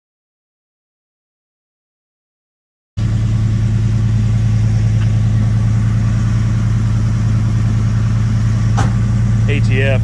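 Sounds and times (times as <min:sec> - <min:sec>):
truck engine idling: 0:03.0 - 0:10.0.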